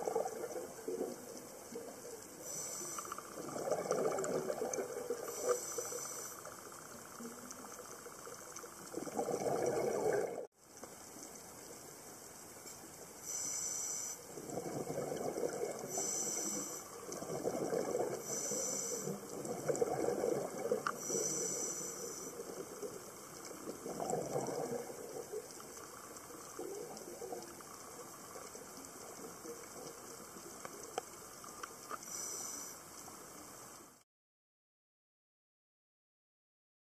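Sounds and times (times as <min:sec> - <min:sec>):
regulator inhale hiss: 0:02.4 - 0:03.4, 0:05.2 - 0:06.7, 0:13.2 - 0:14.4, 0:15.8 - 0:17.2, 0:18.1 - 0:19.4, 0:20.8 - 0:23.5, 0:31.8 - 0:33.2.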